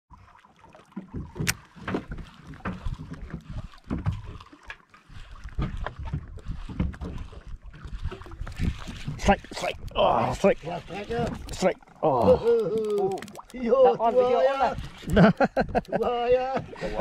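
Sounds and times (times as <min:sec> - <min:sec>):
water slapping boat hull: 0:00.1 - 0:17.0
wind rumble on microphone: 0:05.1 - 0:11.5.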